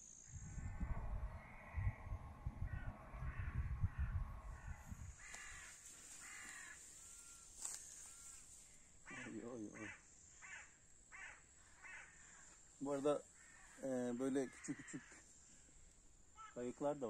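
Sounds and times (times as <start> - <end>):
low rumbling on microphone: 0.0 - 5.7
crows cawing: 1.3 - 16.8.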